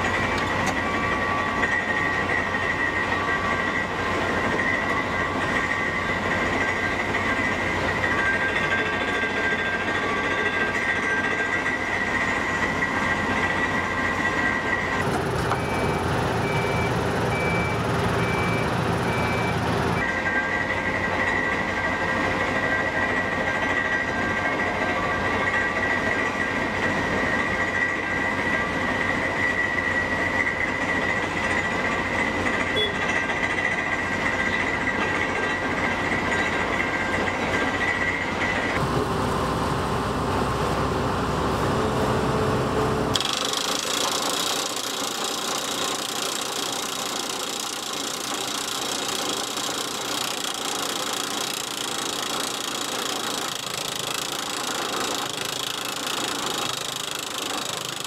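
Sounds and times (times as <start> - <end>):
high mechanical whine: 0.0 - 58.0
drill rig clatter: 43.1 - 58.0.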